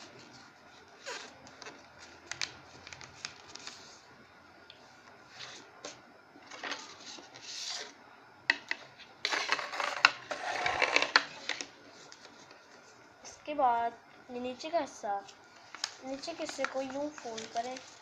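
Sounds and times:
paper folding and crinkling: 0.1s - 4.0s, 9.3s - 13.0s, 15.2s - 18.0s.

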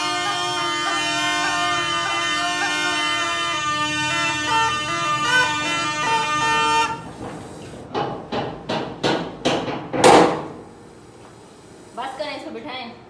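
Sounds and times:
reed pipe melody over drone: 0.0s - 7.1s.

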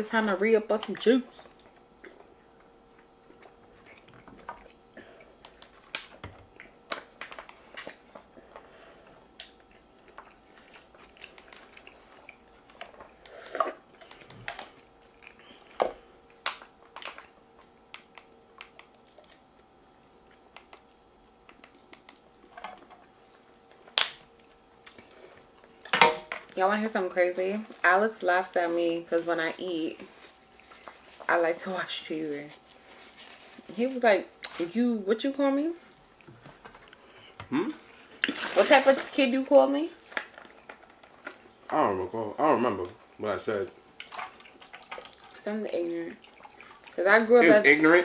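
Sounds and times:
faint steady hum: 0.0s - 48.0s
person chewing: 1.5s - 16.5s.

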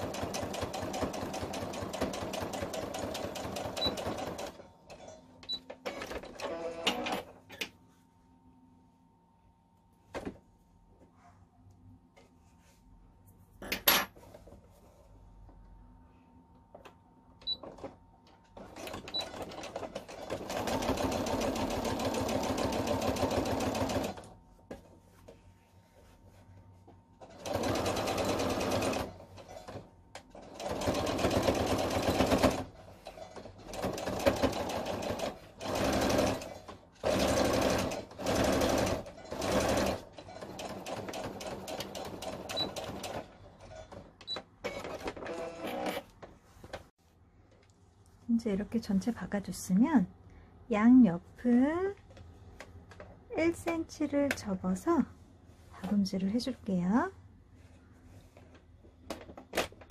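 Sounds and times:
sewing machine stitching: 0.0s - 5.2s, 5.8s - 7.4s, 18.6s - 24.3s, 27.2s - 46.1s.

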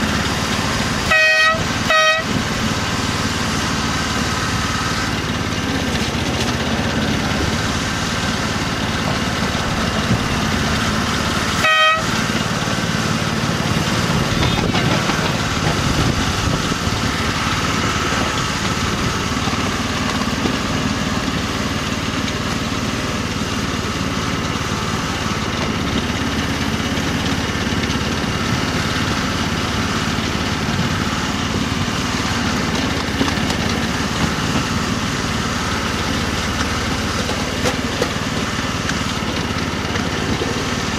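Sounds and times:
small locomotive engine running: 0.0s - 40.9s
short horn toot: 1.1s - 2.4s, 11.6s - 12.2s.

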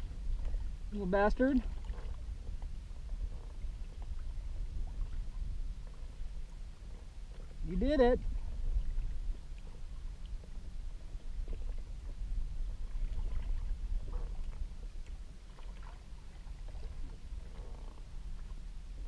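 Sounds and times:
water lapping against kayak hull: 0.0s - 19.0s
wind rumble on microphone: 0.0s - 19.0s
small splashes: 15.4s - 17.2s.

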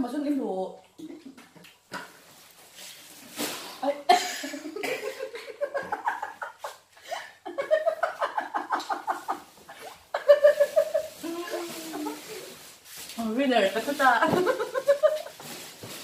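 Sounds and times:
woman laughing: 4.1s - 12.3s, 14.2s - 15.4s.

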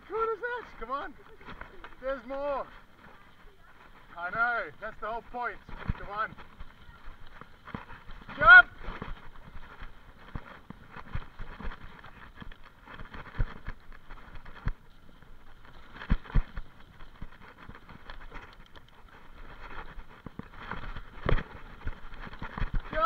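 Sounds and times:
bike knocking and rattling: 0.0s - 23.0s
bike tyres on dirt trail: 0.0s - 23.0s.

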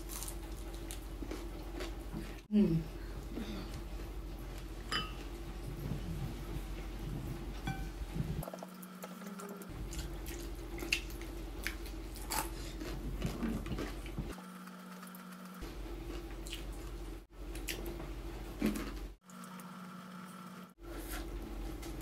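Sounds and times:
low hum: 2.6s - 17.2s.

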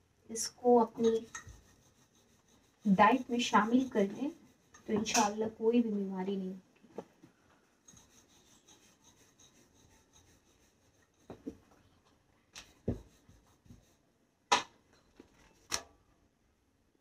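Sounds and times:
rolling pin rubbing dough: 0.6s - 6.0s, 7.0s - 11.8s, 12.6s - 14.0s.

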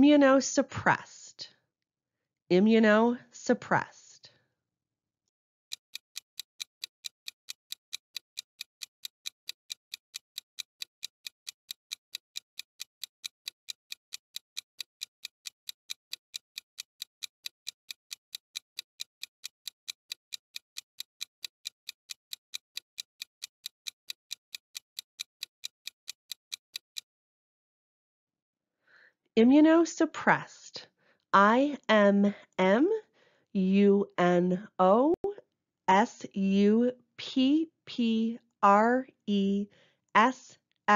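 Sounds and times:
clock ticking: 5.7s - 27.1s.

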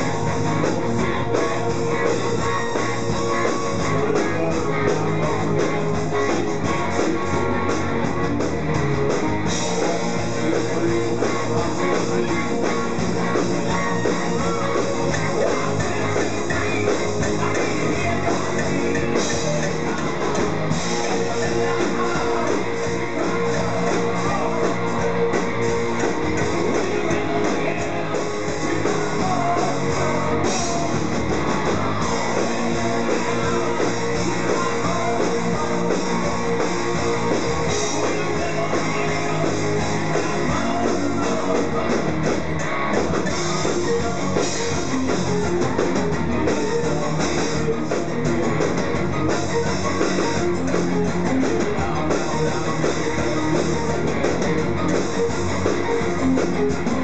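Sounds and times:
person singing: 0.0s - 8.4s, 9.4s - 45.1s
drum kit: 0.0s - 57.0s
electric guitar: 0.0s - 57.0s.

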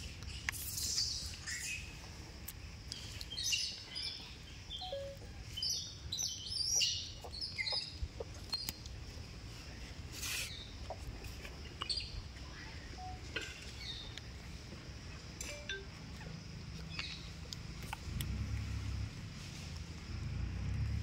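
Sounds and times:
animal chirps and squeaks: 0.3s - 2.0s, 4.8s - 8.8s.

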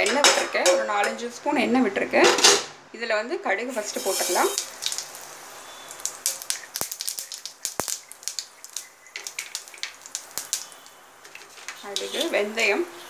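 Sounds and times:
mustard seeds popping in hot oil: 3.8s - 12.8s.

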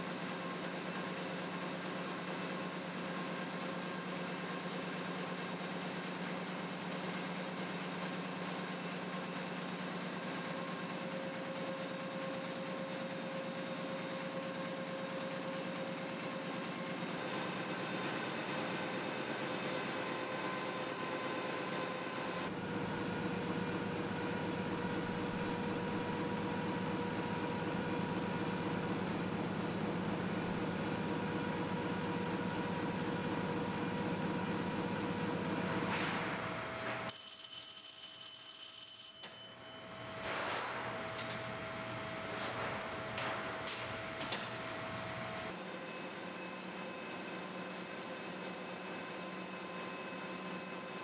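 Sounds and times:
machinery hum: 10.6s - 37.1s, 39.5s - 51.0s
printing press running: 14.8s - 37.1s, 39.9s - 45.6s.

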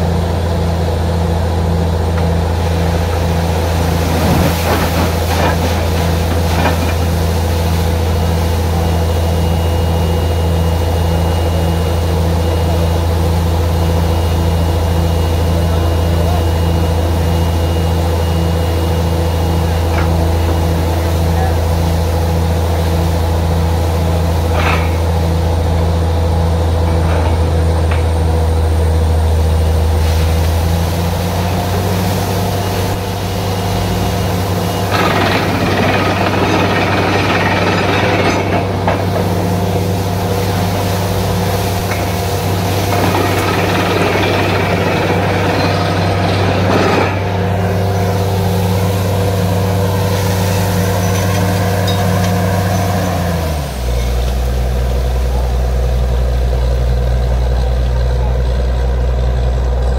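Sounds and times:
drilling rig engine running: 0.0s - 59.9s
air and water hissing rush: 2.4s - 10.2s, 29.3s - 56.2s.

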